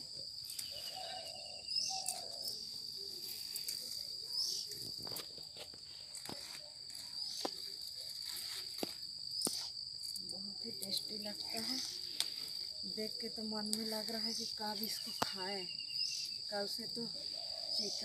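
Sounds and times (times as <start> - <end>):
insect drone: 0.0 - 18.0
leaf stems snapping: 0.4 - 1.1, 1.9 - 10.2, 10.8 - 12.6.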